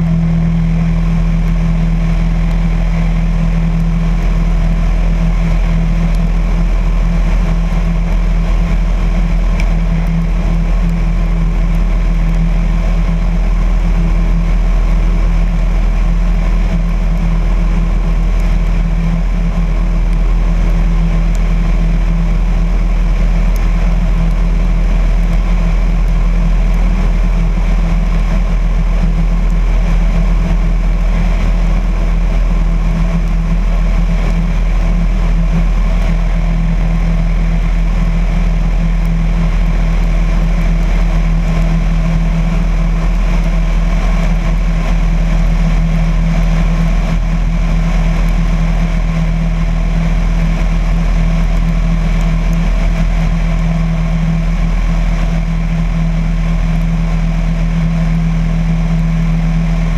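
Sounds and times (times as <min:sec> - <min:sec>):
propeller plane engine droning: 0:00.0 - 0:59.9.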